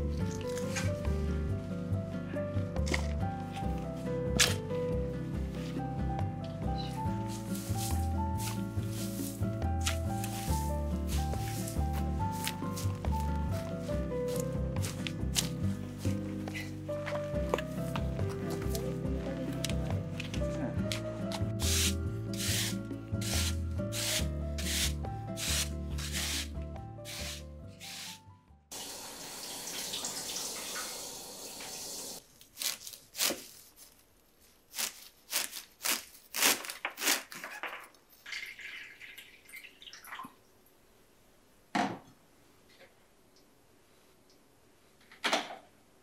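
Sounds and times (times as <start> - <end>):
background music with steady beat: 0.8 - 28.7.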